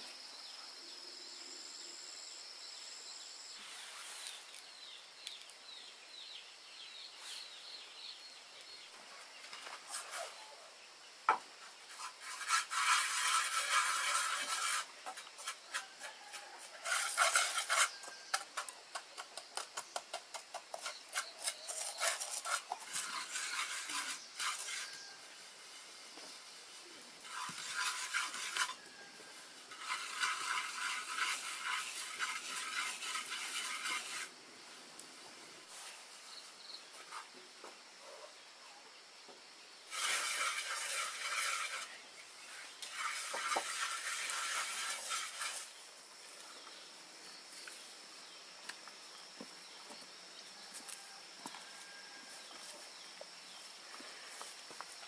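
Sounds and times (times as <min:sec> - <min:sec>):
scraping strokes: 0:03.6 - 0:04.6, 0:09.6 - 0:10.6, 0:11.6 - 0:25.3, 0:26.8 - 0:34.3, 0:39.9 - 0:46.7.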